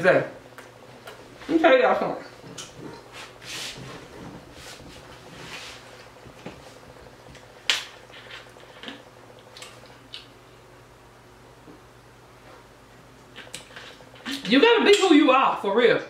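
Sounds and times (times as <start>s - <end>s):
chewing and mouth sounds: 2.3s - 3.4s, 7.3s - 10.4s.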